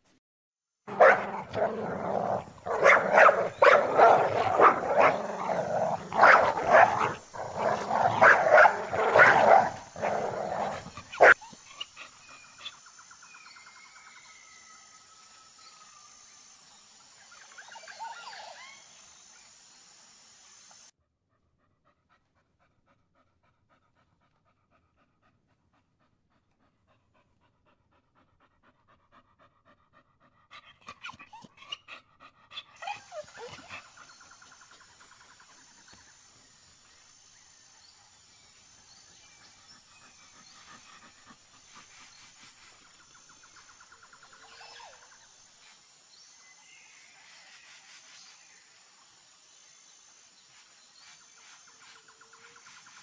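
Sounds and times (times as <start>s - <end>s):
dogs panting: 0.9s - 12.8s, 21.3s - 36.0s, 39.1s - 45.0s
insects chirping: 0.9s - 20.9s, 27.4s - 53.0s.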